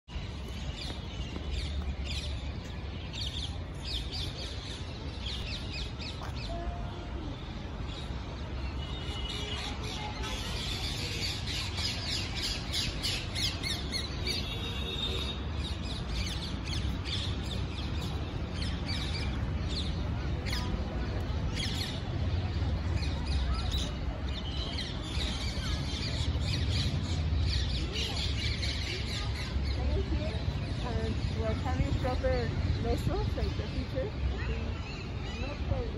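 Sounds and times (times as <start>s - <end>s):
birds chirping and calling: 9.5s - 20.9s.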